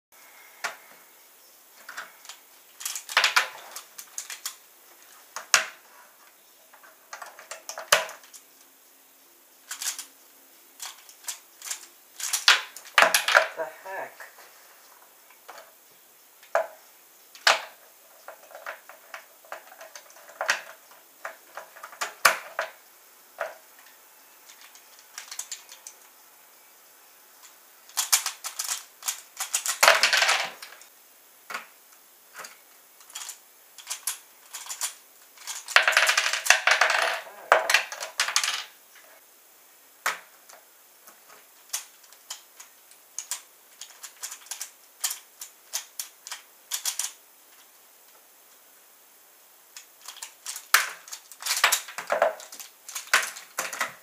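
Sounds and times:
plastic puzzle clicking: 0:01.8 - 0:05.8, 0:06.7 - 0:08.7, 0:09.6 - 0:10.2, 0:10.8 - 0:14.0, 0:16.4 - 0:22.8, 0:23.4 - 0:26.1, 0:27.4 - 0:30.9, 0:32.3 - 0:38.7, 0:40.0 - 0:47.7, 0:49.7 - 0:54.0.

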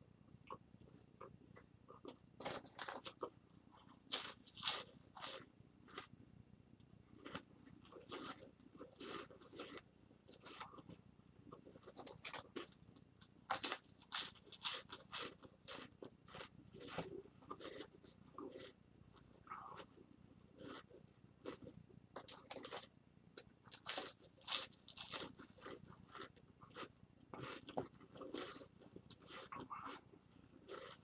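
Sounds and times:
crackers being crunched and chewed: 0:02.0 - 0:06.1, 0:07.2 - 0:31.0.

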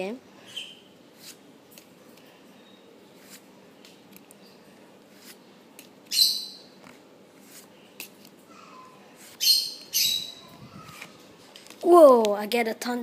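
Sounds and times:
trading cards sliding: 0:05.0 - 0:06.1, 0:06.8 - 0:08.4.

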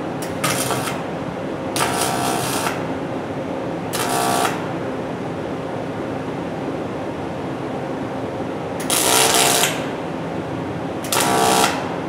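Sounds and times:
steady low hum: 0:00.0 - 0:12.0
welding arc buzzing crackle: 0:00.2 - 0:02.9, 0:03.9 - 0:04.7, 0:08.8 - 0:09.9, 0:11.0 - 0:11.9.

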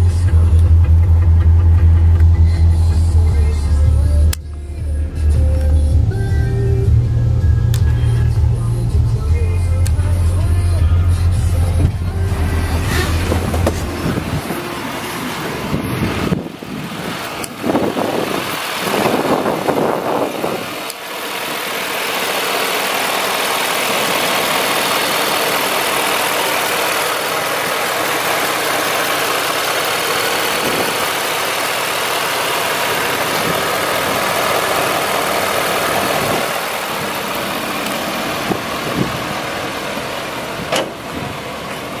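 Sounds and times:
truck engine idling: 0:00.0 - 0:42.0
handling noise: 0:11.5 - 0:14.7.

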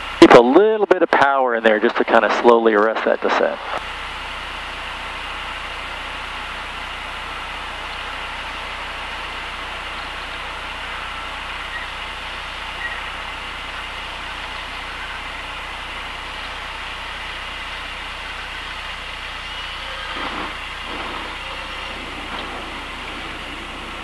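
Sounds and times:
light aircraft engine at low power: 0:00.0 - 0:24.0
wheels rumbling on grass: 0:05.3 - 0:24.0
cabin noise: 0:19.7 - 0:24.0.

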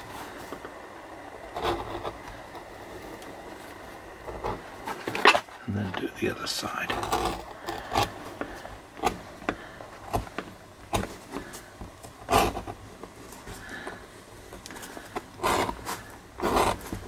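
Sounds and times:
edge beveler scraping leather: 0:01.5 - 0:02.3, 0:06.9 - 0:11.5, 0:12.1 - 0:12.8, 0:14.8 - 0:17.0.

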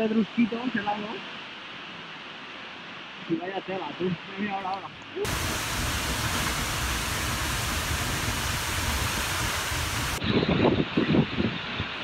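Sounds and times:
waterfall rushing: 0:05.2 - 0:10.2
gusty rumble: 0:05.3 - 0:12.0.

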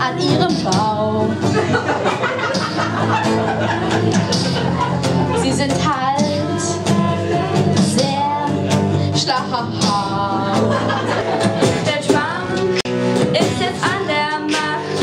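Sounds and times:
woman singing: 0:00.0 - 0:01.6, 0:05.3 - 0:15.0
acoustic guitar: 0:00.0 - 0:15.0.

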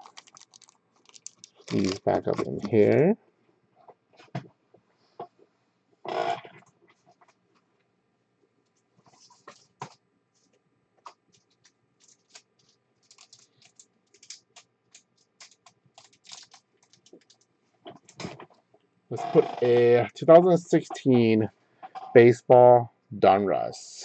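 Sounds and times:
faint keyboard typing: 0:00.0 - 0:03.0, 0:08.7 - 0:18.6.

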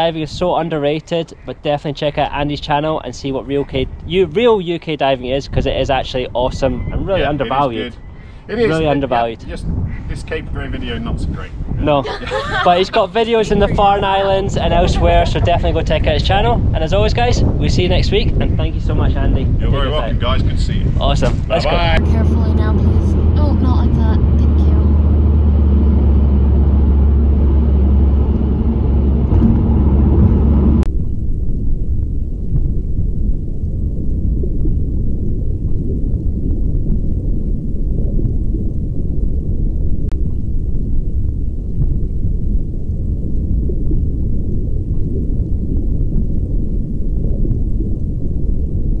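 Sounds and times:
underwater churning rumble: 0:09.4 - 0:49.0
car road and engine drone: 0:21.9 - 0:30.9.

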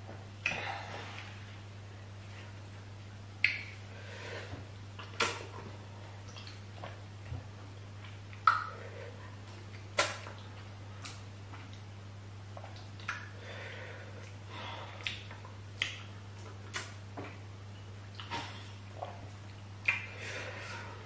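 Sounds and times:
steady low hum: 0:00.0 - 0:21.0
wet chewing smacks: 0:06.2 - 0:07.0.

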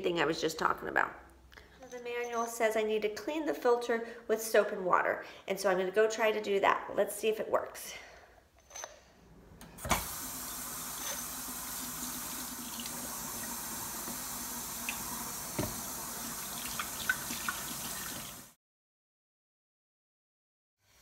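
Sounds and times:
tap water running into sink: 0:09.9 - 0:18.6
knock: 0:15.6 - 0:15.8.

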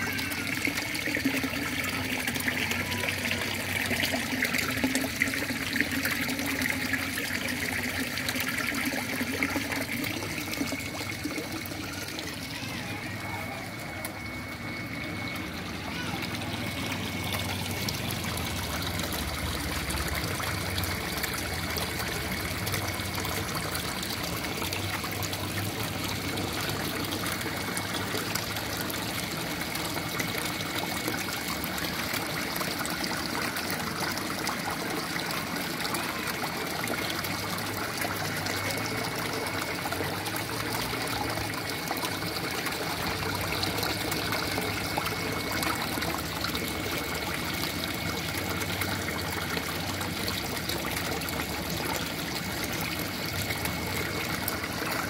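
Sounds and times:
faint high tone: 0:00.0 - 0:20.3
water trickling and splashing: 0:00.0 - 0:55.0.

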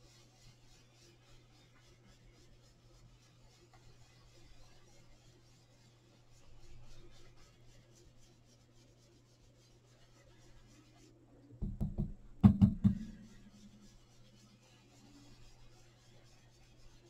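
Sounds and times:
brush rubbing on card: 0:00.0 - 0:11.2, 0:12.8 - 0:17.0
faint electrical hum: 0:00.0 - 0:17.0
dull knocks: 0:11.6 - 0:13.3.

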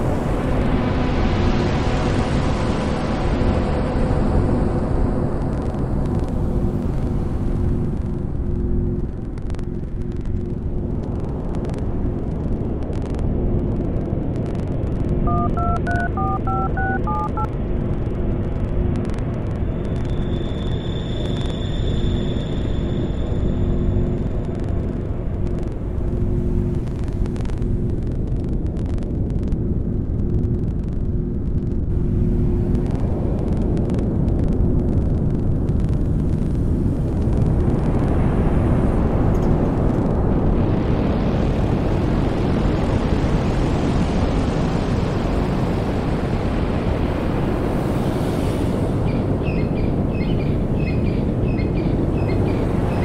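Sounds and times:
small repeated chirps: 0:15.3 - 0:17.5.

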